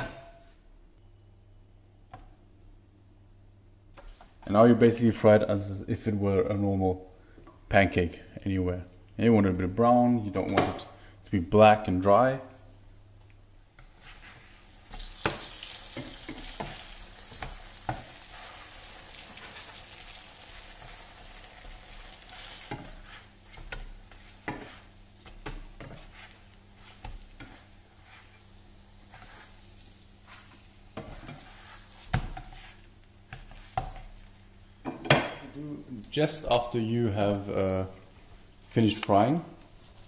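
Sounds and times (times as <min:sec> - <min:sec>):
spatula scraping a pan: 0:13.8 - 0:34.3
flatbread sizzling in oil: 0:13.8 - 0:34.6.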